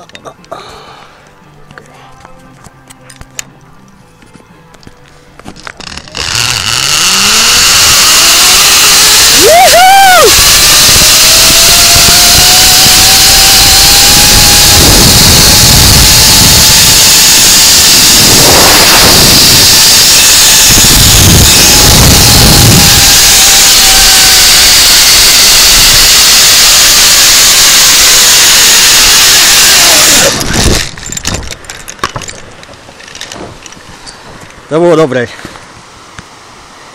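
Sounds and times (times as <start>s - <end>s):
zip-line trolley whine: 5.8s - 31.3s
wind rushing on microphone: 10.3s - 24.4s, 30.0s - 31.6s.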